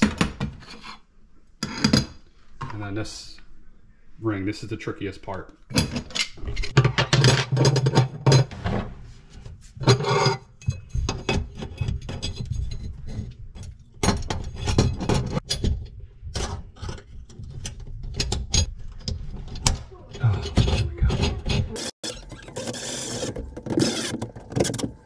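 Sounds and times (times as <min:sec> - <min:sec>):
metal clinking and scraping: 0:05.7 - 0:08.8, 0:09.6 - 0:25.0.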